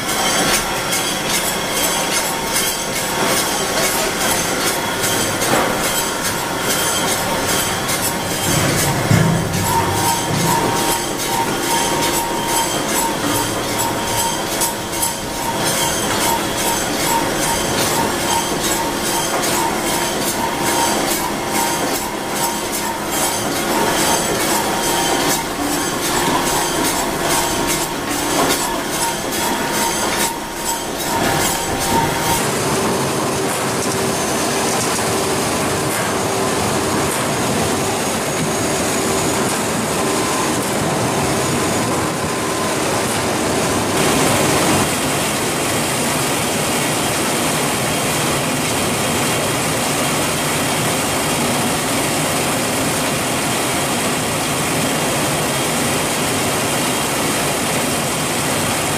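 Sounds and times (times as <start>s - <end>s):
metallic clanking and squealing: 0.0s - 35.2s
machinery whirring: 0.0s - 58.9s.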